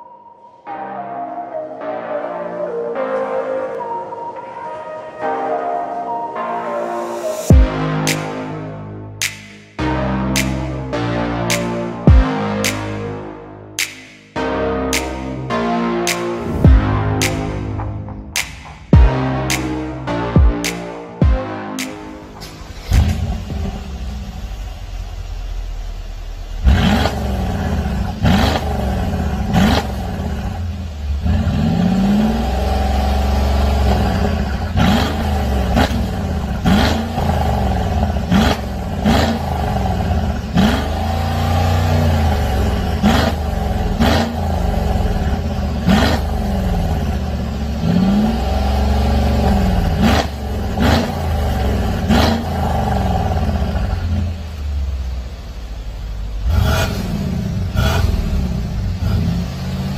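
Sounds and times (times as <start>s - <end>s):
car engine revving: 21.8s - 59.9s.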